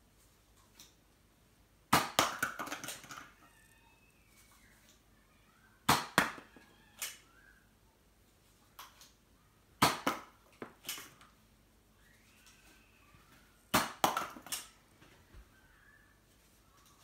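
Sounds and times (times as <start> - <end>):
foam-dart blaster firing cracks: 5.9 - 6.4.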